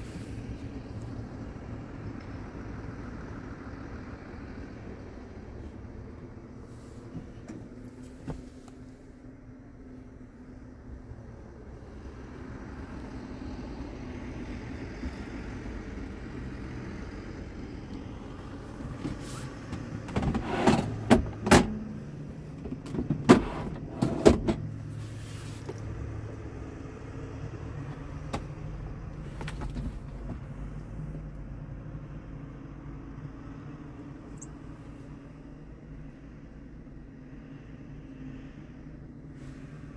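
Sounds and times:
low cab hum: 0.0s - 39.9s
plastic drawer clicks and knocks: 20.0s - 21.9s.

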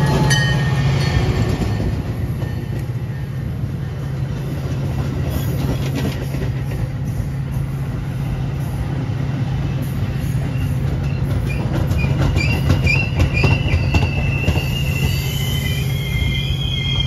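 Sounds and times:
train cars rumbling past: 0.0s - 17.0s
wheels clicking over rail joints: 4.2s - 7.0s, 10.4s - 15.2s
wheels squealing: 10.1s - 17.0s.

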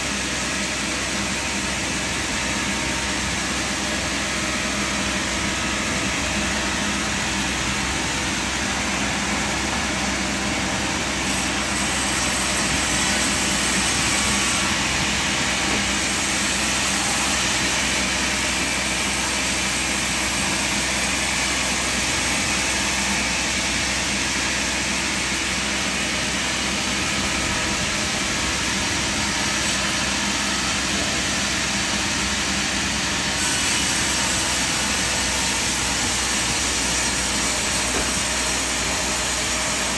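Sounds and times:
sawmill machinery drone: 0.0s - 39.9s.

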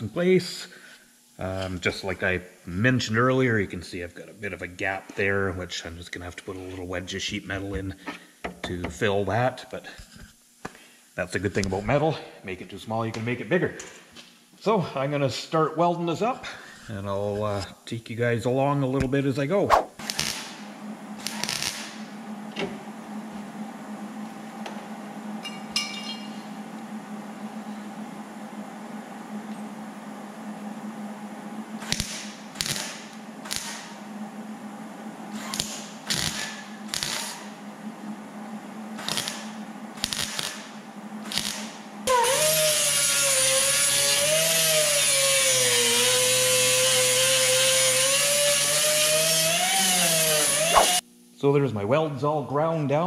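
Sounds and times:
low hum: 16.1s - 35.4s
metallic clink: 25.4s - 26.4s
angle grinder grinding metal: 42.1s - 51.0s.

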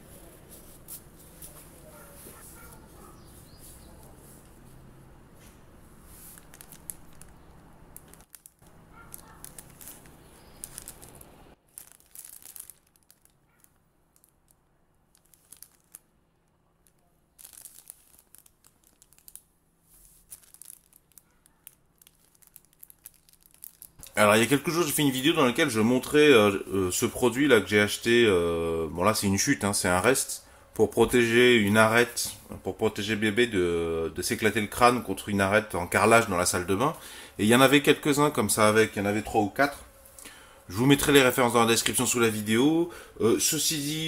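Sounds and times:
plastic bag crinkling: 5.9s - 26.2s.

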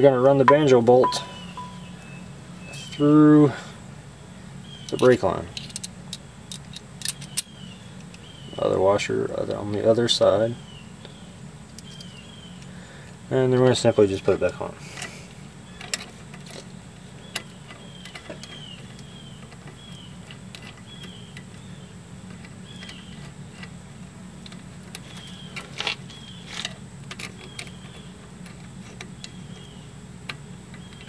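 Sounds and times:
steady low hum: 0.0s - 31.0s
faint high chirp: 0.5s - 3.0s.

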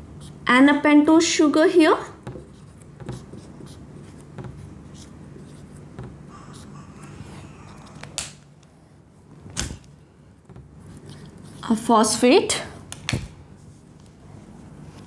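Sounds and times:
steady low hum: 0.0s - 15.0s
marker tapping and scraping on board: 2.2s - 6.7s.

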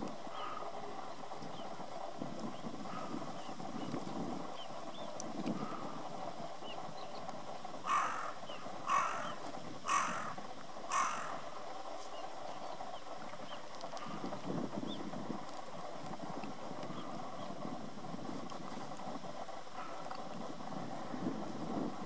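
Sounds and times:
crow cawing: 0.3s - 0.7s, 7.8s - 11.5s.

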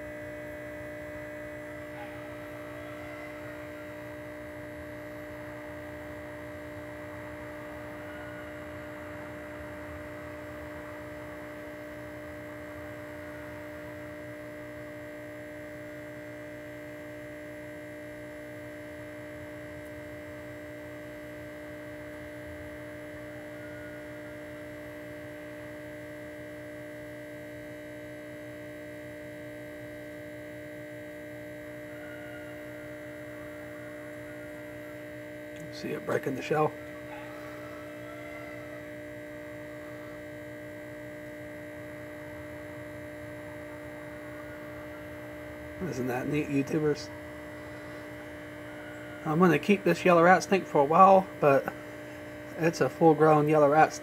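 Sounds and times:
steady electrical hum: 0.0s - 54.0s.

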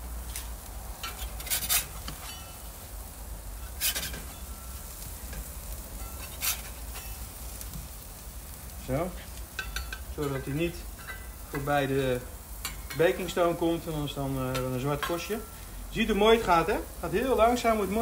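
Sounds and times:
faint sizzle of burgers grilling: 0.0s - 18.0s
metal spatula scraping stone: 1.0s - 2.6s, 3.6s - 4.4s, 6.0s - 7.3s.

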